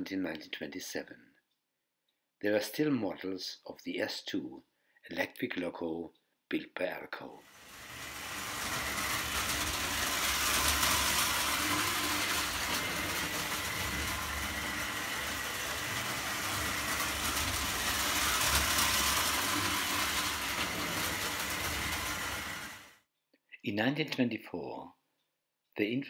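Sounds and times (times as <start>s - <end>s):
toy train rolling clatter: 7.4s - 23.0s.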